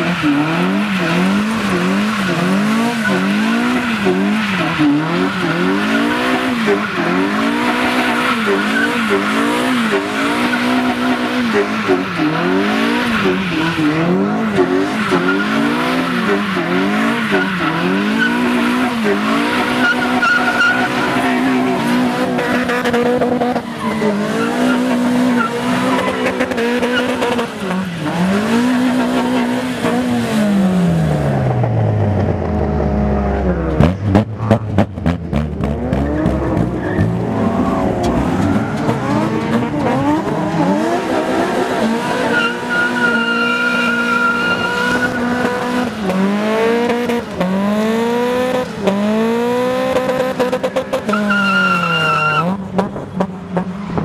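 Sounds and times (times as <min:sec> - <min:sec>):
tyres squealing on wet tarmac: 0:00.0 - 0:30.7, 0:36.1 - 0:47.4, 0:50.1 - 0:52.6
car engine revving: 0:00.0 - 0:54.0
exhaust pops and crackles: 0:31.4 - 0:37.2.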